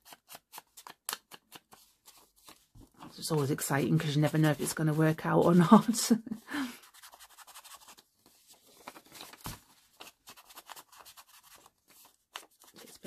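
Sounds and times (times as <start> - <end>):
scratchy strokes on paper: 6.8 - 8.0.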